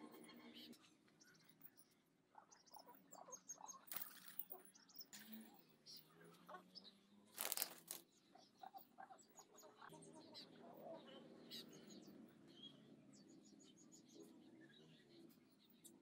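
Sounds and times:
faint pigeon sounds: 0.0s - 16.0s
pigeon wings flapping: 7.4s - 8.0s.

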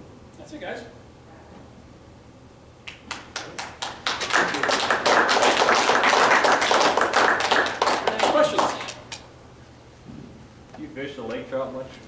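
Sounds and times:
audience applauding: 2.9s - 9.2s.

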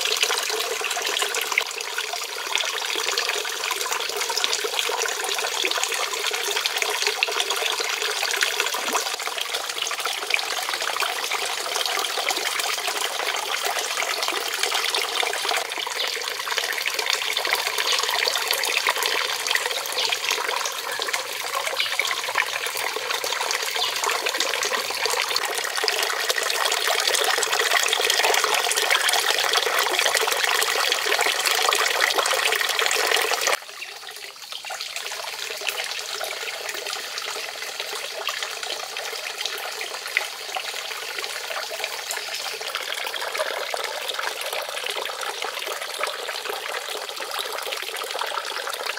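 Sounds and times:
water stream splashing into pond: 0.0s - 48.9s.

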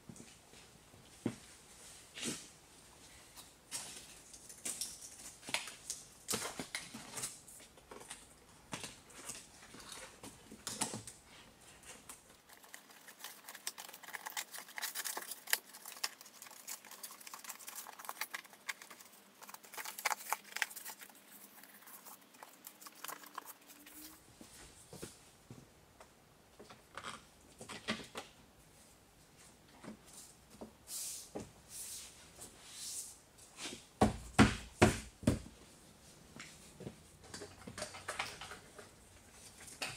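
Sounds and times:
plastic sheet crinkling and rustling: 3.7s - 24.3s.

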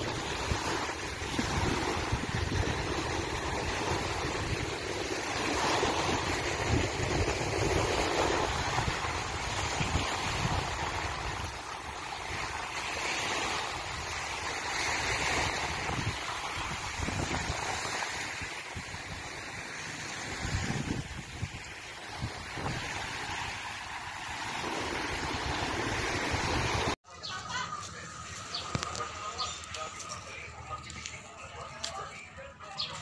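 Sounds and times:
wind buffeting microphone: 0.0s - 11.7s, 15.2s - 19.3s, 20.2s - 27.0s
rushing water: 0.0s - 27.0s, 27.6s - 33.0s.

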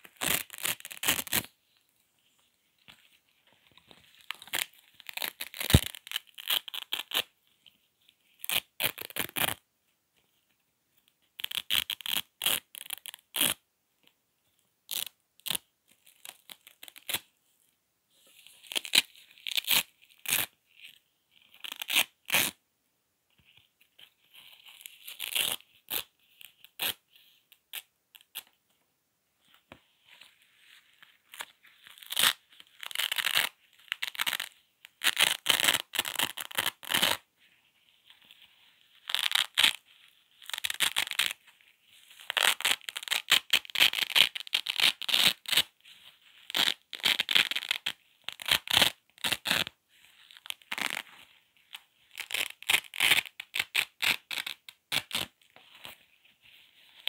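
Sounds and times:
velcro being pulled apart: 0.0s - 1.5s, 4.2s - 7.3s, 8.4s - 9.6s, 11.4s - 13.6s, 14.9s - 17.3s, 18.6s - 22.6s, 24.4s - 27.0s, 31.2s - 37.2s, 38.9s - 41.5s, 42.2s - 45.7s, 46.4s - 51.2s, 52.1s - 56.0s.

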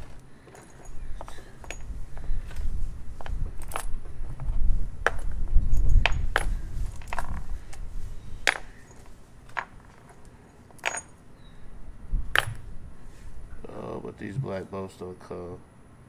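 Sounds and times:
steel bolts clinking: 8.5s - 11.2s.

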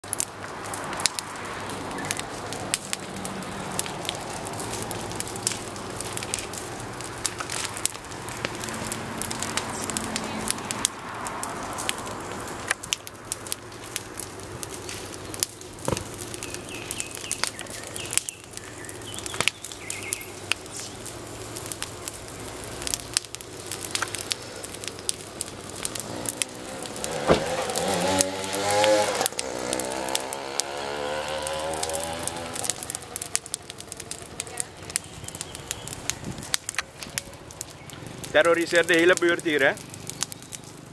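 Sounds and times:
bonfire crackling and popping: 0.0s - 40.9s
small engine revving: 25.8s - 33.5s.

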